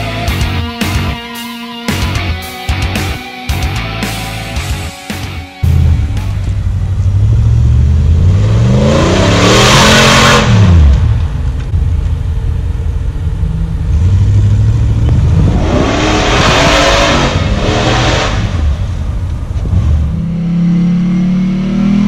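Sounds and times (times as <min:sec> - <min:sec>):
vehicle engine revving: 0:04.2 - 0:22.0.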